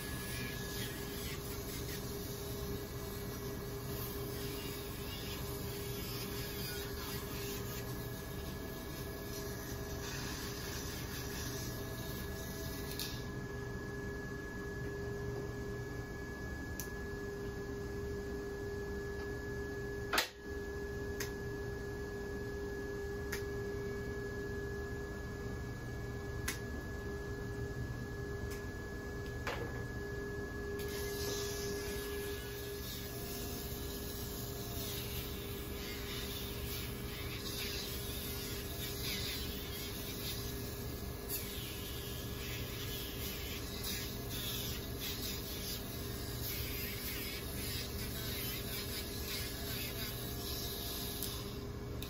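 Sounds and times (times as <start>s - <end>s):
pet nail grinder whining: 30.8s - 51.6s.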